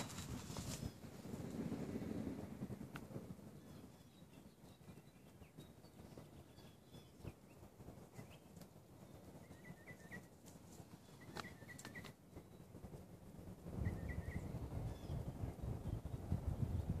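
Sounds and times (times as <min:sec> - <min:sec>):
small bird chirping: 0:03.6 - 0:12.8.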